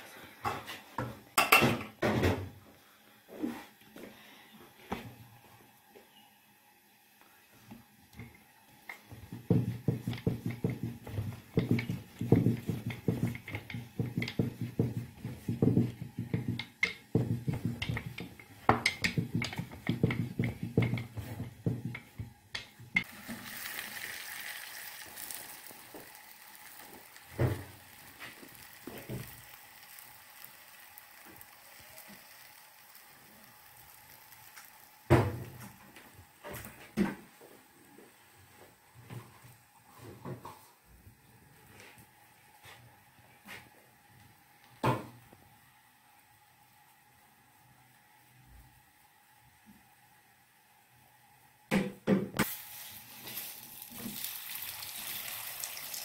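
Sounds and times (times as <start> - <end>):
steady hiss: 2.7 - 36.8
rolling pin rolling dough: 9.0 - 23.1.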